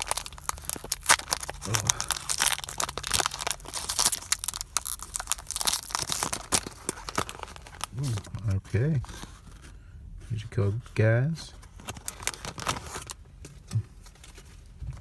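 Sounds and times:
foil wrapper crinkling and tearing: 0.0 - 9.4, 11.7 - 13.2.

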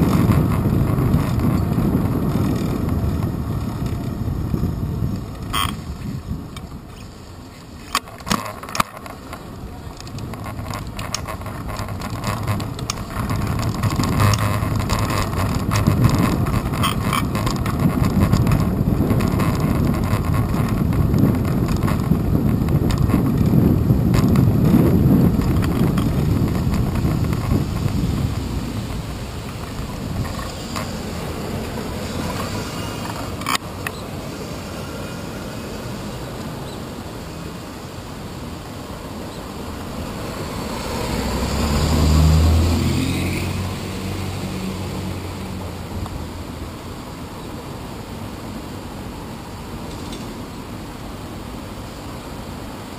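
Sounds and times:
bicycle clicks and knocks: 0.0 - 5.9, 7.8 - 34.0
wind buffeting microphone: 0.0 - 47.0
low road rumble: 0.0 - 52.9.

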